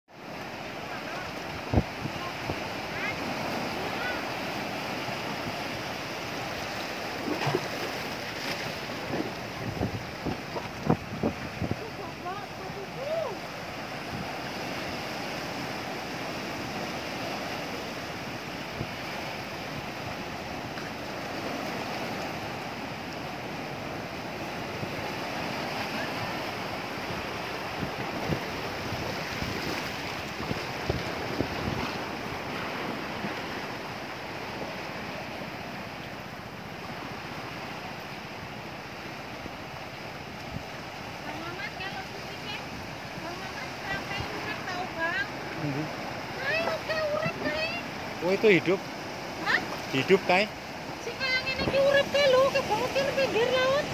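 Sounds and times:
ocean waves breaking on shore: 0.1s - 53.9s
wind buffeting microphone: 1.2s - 35.7s, 50.7s - 53.9s.

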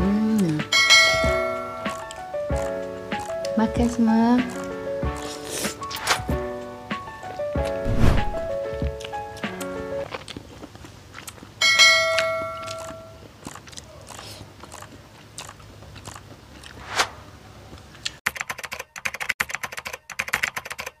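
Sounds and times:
chewing: 4.5s - 6.0s, 9.0s - 11.6s, 12.6s - 16.8s.

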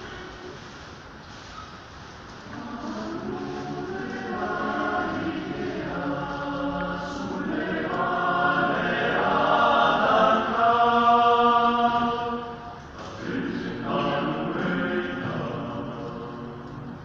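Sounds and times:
male choir singing in harmony: 2.5s - 17.0s.

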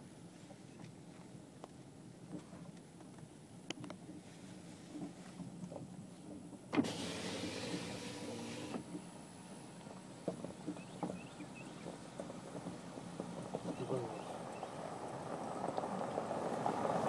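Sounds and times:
power window motor humming: 6.8s - 9.2s.

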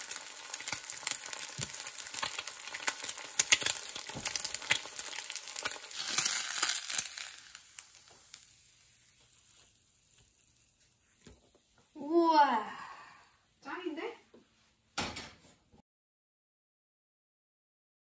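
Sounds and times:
egg sizzling in oil: 0.0s - 13.7s.

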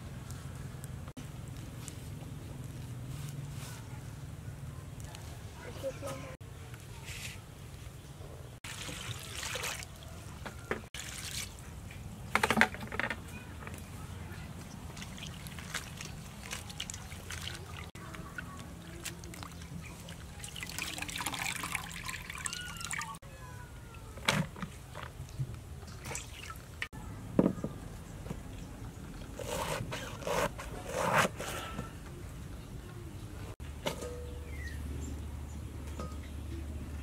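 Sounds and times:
water splashing in steel bowl: 8.6s - 10.0s, 11.0s - 11.6s, 14.9s - 17.9s, 19.0s - 23.2s, 25.9s - 26.9s.

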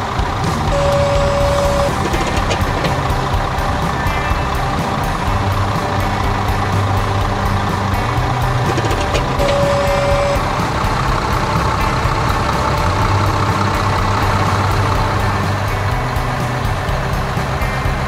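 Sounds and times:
background music: 0.0s - 18.0s
cartoon tractor engine running: 0.0s - 18.0s
brief beep: 0.7s - 2.9s, 8.7s - 10.4s.

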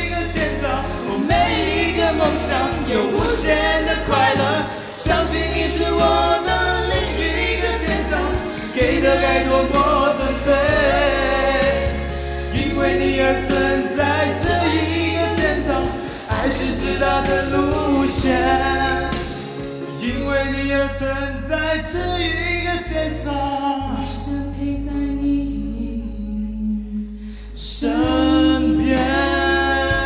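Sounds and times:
woman singing a pop ballad: 0.0s - 19.5s
backing track with bass line: 0.0s - 30.0s.

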